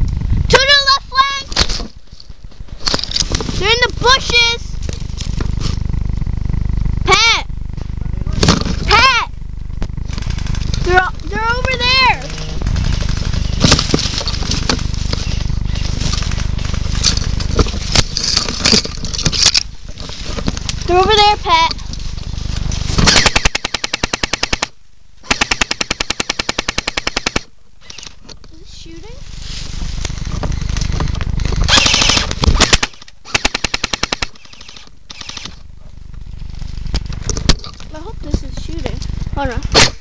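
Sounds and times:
low rumble of microphone noise: 0.0s - 23.1s, 27.5s - 32.6s, 34.9s - 40.0s
twigs snapping and scraping: 1.5s - 3.6s, 12.6s - 20.9s
dry leaves crunching: 1.6s - 8.0s, 8.7s - 23.2s, 28.7s - 32.6s
airsoft gun bursts: 23.0s - 28.2s, 31.6s - 35.6s.

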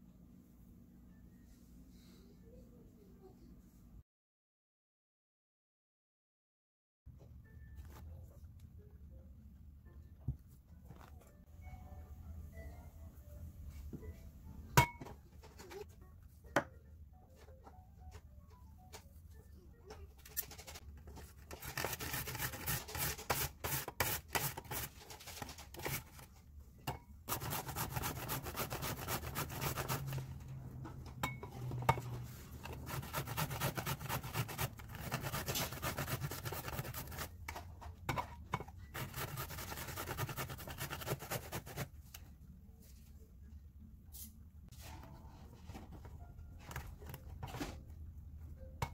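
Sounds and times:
zucchini grated on metal grater: 21.5s - 26.2s, 27.3s - 30.2s, 32.6s - 37.3s, 38.9s - 41.9s.

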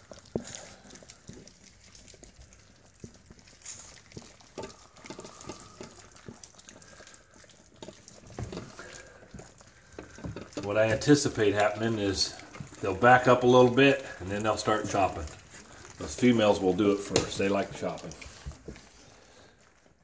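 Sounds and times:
small clicks on metal bowls: 0.0s - 14.2s
puppies lapping and slurping: 0.0s - 20.0s.

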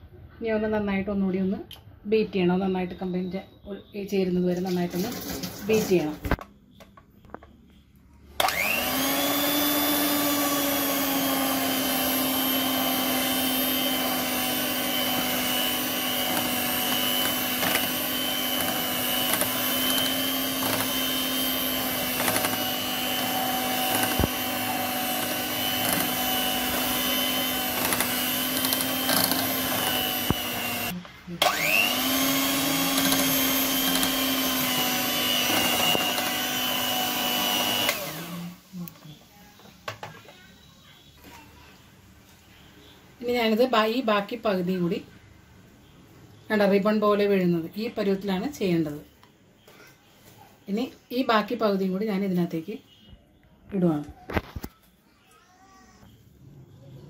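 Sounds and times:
electric hand mixer whining: 8.4s - 38.7s.

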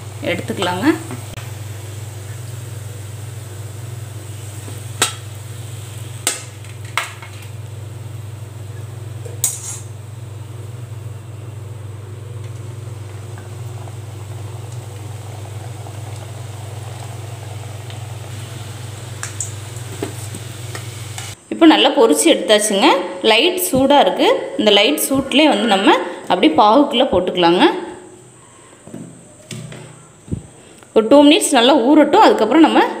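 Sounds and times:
faint frying in oil: 0.0s - 21.4s
steady low hum: 0.0s - 21.9s
metal tongs clinking on metal: 9.4s - 9.9s.

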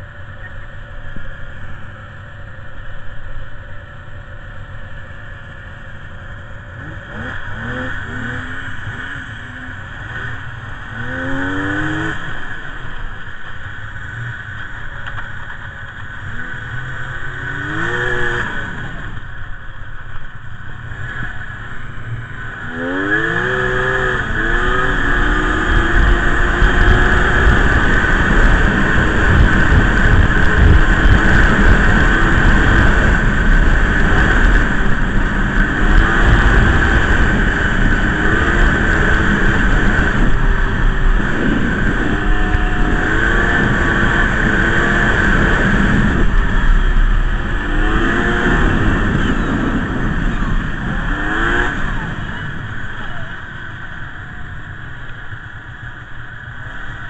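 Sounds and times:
snowmobile engine revving: 6.7s - 13.0s, 15.8s - 19.2s, 20.9s - 54.3s.

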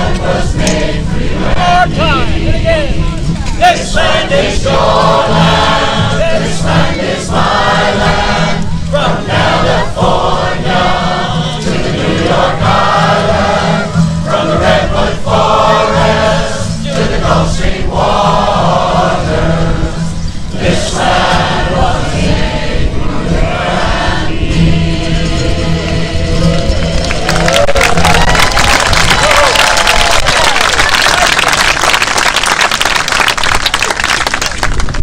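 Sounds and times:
large mixed chorus singing: 0.0s - 3.0s, 3.6s - 27.7s
acoustic guitars: 0.0s - 29.2s
upright basses: 0.0s - 32.4s.

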